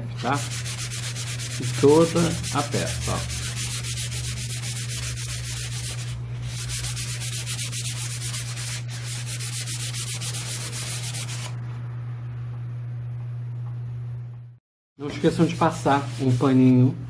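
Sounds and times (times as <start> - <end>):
steady low hum: 0.0 - 17.0
sandpaper rubbing on board: 0.2 - 11.6, 15.2 - 16.8.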